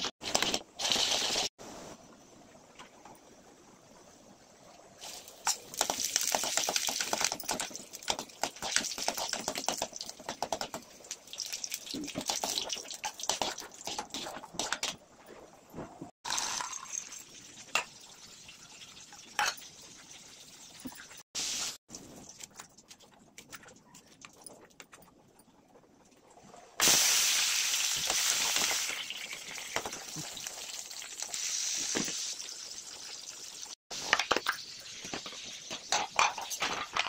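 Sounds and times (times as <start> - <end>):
hot oil sizzling and crackling: 0.0 - 1.5, 5.0 - 14.8, 16.2 - 22.4, 26.8 - 37.0.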